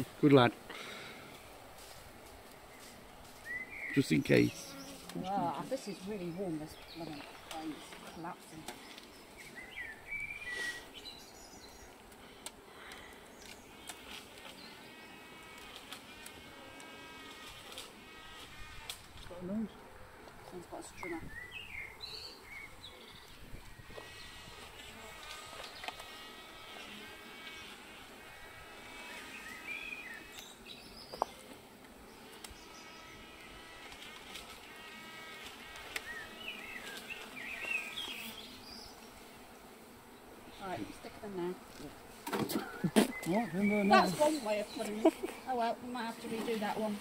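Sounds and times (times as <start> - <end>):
bees buzzing: 0.0 - 47.0
bird chirping: 2.7 - 5.0, 5.7 - 12.0, 20.9 - 23.5.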